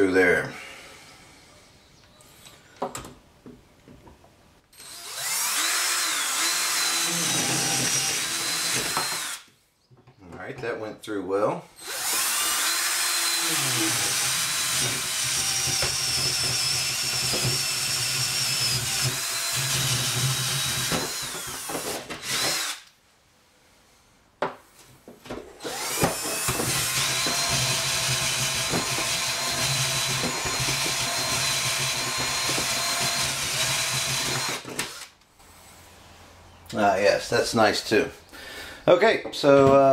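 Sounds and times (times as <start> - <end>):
power drill whining: 4.8 - 9.5, 11.8 - 22.9, 25.6 - 35.1.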